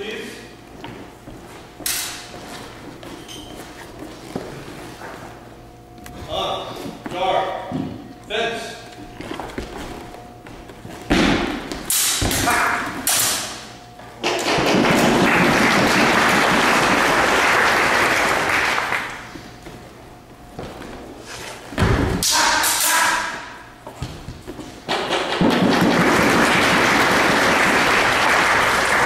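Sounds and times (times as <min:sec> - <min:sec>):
sabres striking: 0:01.8 - 0:02.2, 0:11.1 - 0:13.7, 0:22.1 - 0:23.6
audience applauding: 0:14.7 - 0:19.2, 0:25.5 - 0:29.0.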